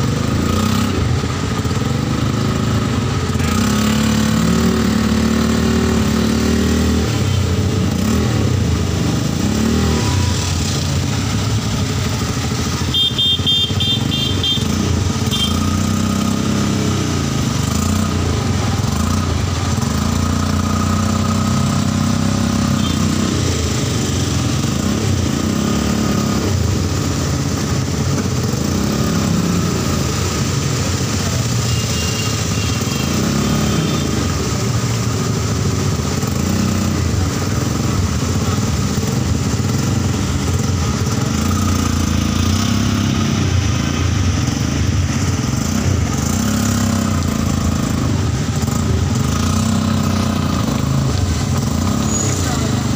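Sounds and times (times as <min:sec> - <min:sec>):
rain hiss on wet road: 0:33.8 - 0:52.9.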